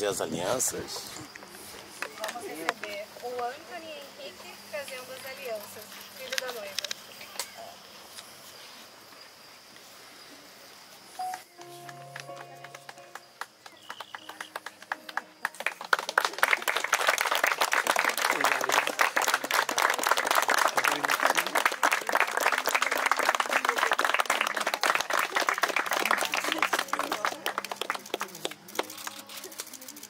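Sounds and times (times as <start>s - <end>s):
crowd applauding: 11.4s - 30.0s.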